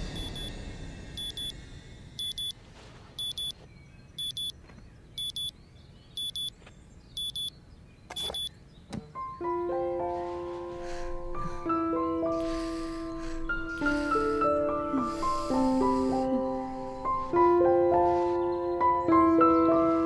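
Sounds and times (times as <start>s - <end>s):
alarm clock double beeping: 0.1s - 0.5s, 1.2s - 1.5s, 2.2s - 2.5s, 3.2s - 3.5s, 4.2s - 4.5s, 5.2s - 5.5s, 7.2s - 7.5s, 8.1s - 8.5s.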